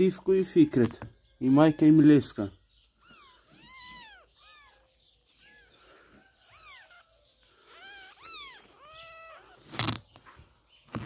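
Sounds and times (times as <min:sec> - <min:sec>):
kittens mewing: 0:02.9 - 0:11.0.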